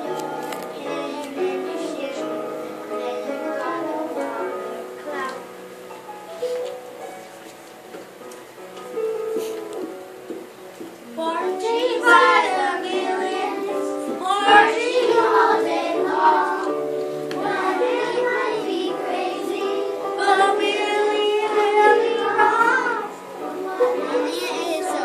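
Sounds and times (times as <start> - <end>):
children singing together: 0.0 - 5.3, 11.2 - 25.0
instrumental accompaniment: 0.0 - 25.0.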